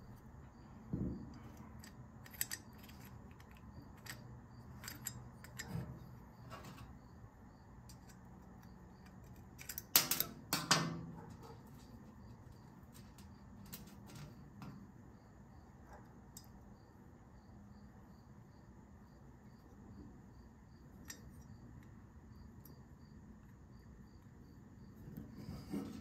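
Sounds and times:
metallic clicks and taps: 1.3 - 5.8
metal clinks: 1.4 - 5.8.

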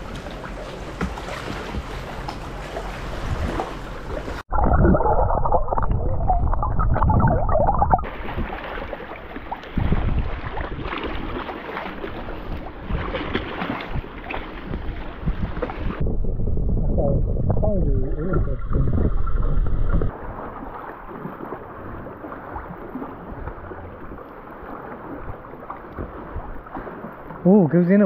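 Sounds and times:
kayak paddle strokes: 0.0 - 4.4
underwater gurgling and sloshing: 0.0 - 28.0
water lapping against hull: 0.0 - 28.0.

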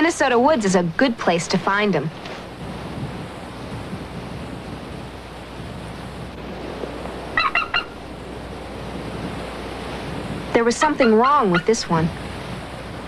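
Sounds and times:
wind noise on microphone: 0.0 - 13.0
hawk calling: 7.4 - 8.1, 10.8 - 11.8.

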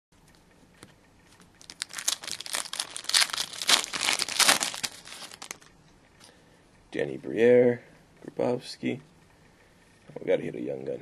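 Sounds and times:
foil wrapper tearing and crinkling: 1.6 - 5.7.

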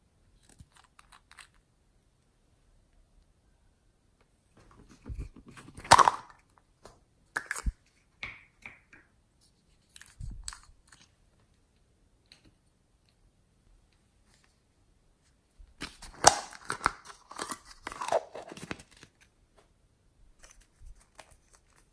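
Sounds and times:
plastic containers handled: 4.6 - 7.8, 15.8 - 19.2.

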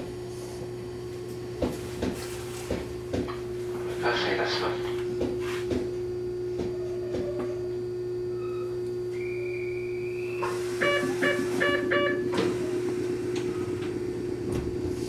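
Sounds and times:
electrical hum: 0.0 - 15.0
short electronic beeps: 9.3 - 12.2.

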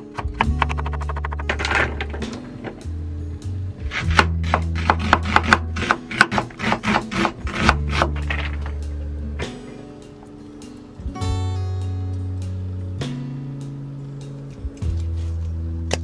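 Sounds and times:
knife cutting onion on board: 0.0 - 2.2, 3.8 - 8.6
background music with bass: 0.0 - 16.0.

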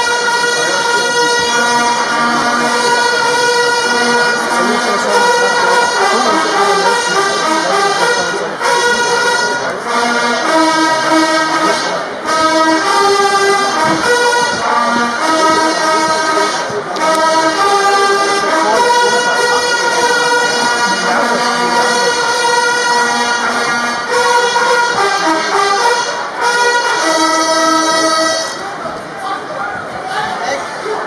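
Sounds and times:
brass band playing slow tune: 0.0 - 28.8.

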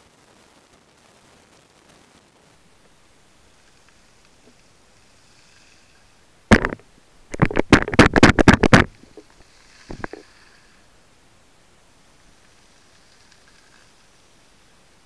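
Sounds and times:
sharp clicks underwater: 6.5 - 9.2, 9.8 - 10.3.

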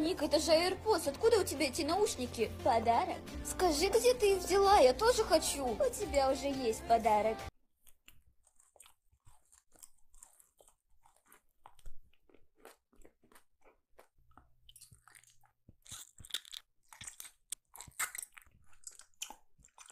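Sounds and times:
chewing crunchy candy: 7.7 - 19.9
wet mouth clicks: 7.8 - 19.9.

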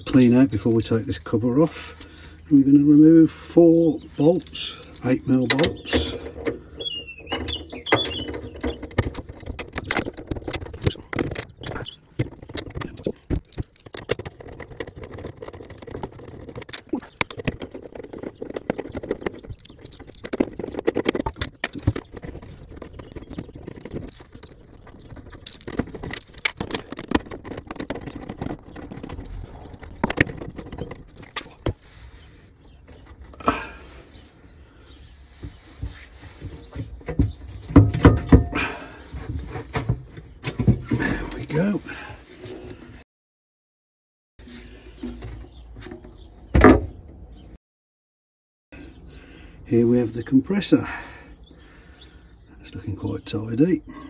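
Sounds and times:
knocks and rattles of metal parts: 4.1 - 31.8, 36.4 - 41.6.

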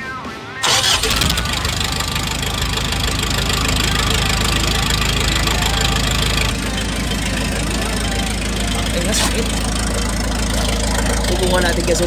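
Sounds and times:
unmuffled car engine rasp: 0.6 - 12.0.

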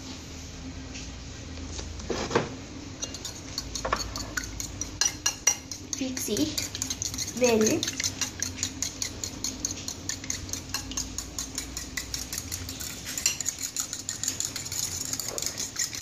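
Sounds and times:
fork whisking eggs in bowl: 3.0 - 16.0.

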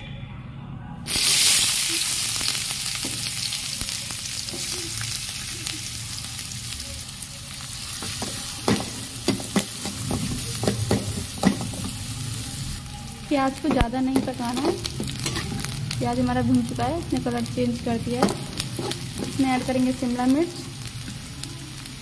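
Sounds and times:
onions sizzling in hot oil: 1.1 - 22.0
metal spatula scraping pan: 13.7 - 15.8, 18.2 - 19.8.

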